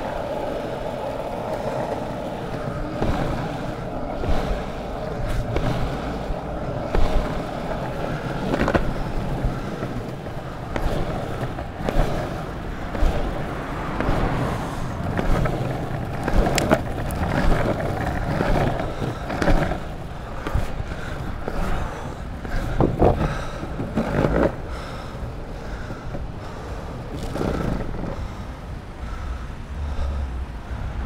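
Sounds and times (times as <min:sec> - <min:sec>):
longboard wheels rumbling on pavement: 0:00.0 - 0:31.0.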